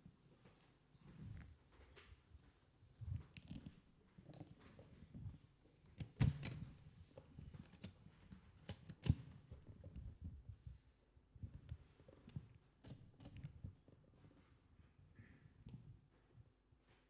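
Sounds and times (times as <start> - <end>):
faint low thuds and shuffling: 0.0 - 5.8, 9.5 - 12.8.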